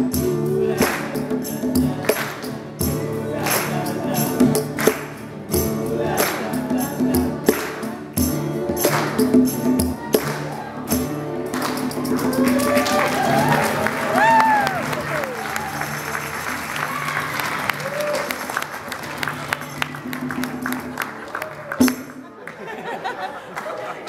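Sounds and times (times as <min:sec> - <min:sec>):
men singing together: 0:00.0 - 0:10.9
strummed acoustic guitar: 0:00.0 - 0:14.2.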